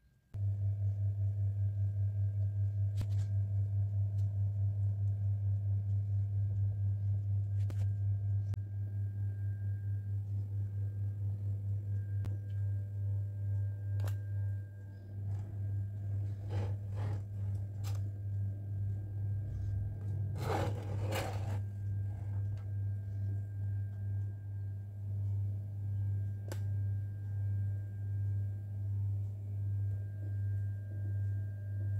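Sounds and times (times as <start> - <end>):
steady low hum: 0.2 - 31.9
scraping noise: 16.1 - 18.0, 20.3 - 22.6.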